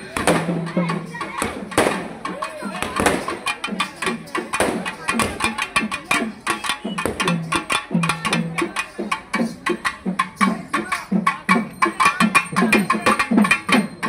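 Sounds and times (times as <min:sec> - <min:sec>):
firecrackers crackling: 0:00.0 - 0:07.8
drums in fast driving rhythm: 0:00.0 - 0:14.0.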